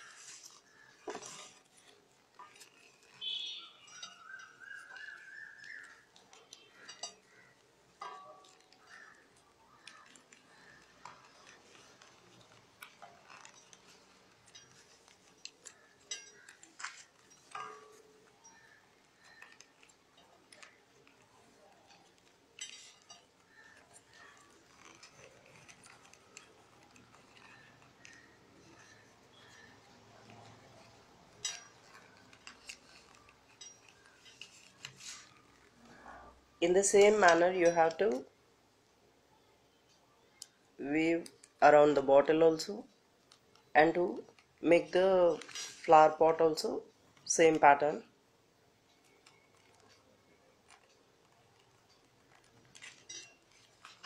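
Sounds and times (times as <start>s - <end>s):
paper rustling: 0.0s - 7.5s, 8.5s - 35.8s.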